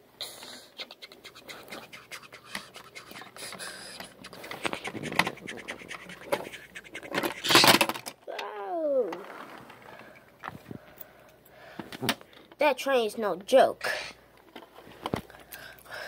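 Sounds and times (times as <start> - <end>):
plastic toy scraping on a tray: 2.4 - 7.9.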